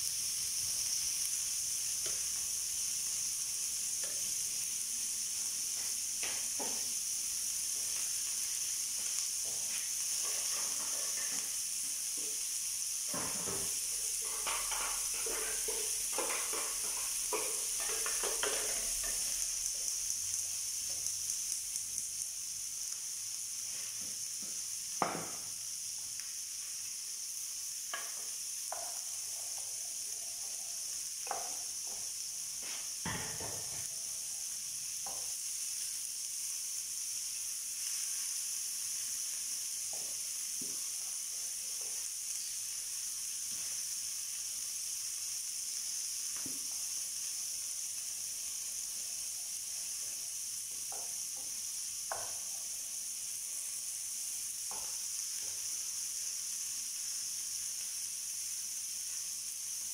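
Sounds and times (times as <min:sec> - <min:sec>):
skewers sizzling in a grill pan: 0:00.0 - 0:59.9
containers and utensils clinking: 0:13.1 - 0:19.5.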